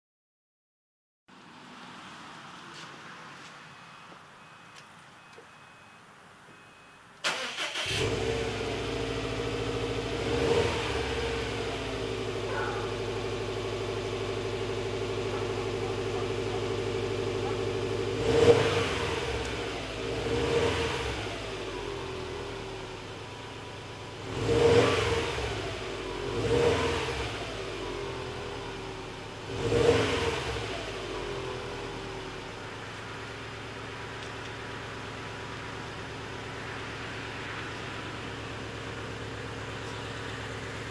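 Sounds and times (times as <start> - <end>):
car engine starting and idling: 3.9 - 40.9
engine throttle revs: 7.2 - 22.9, 24.1 - 32.8.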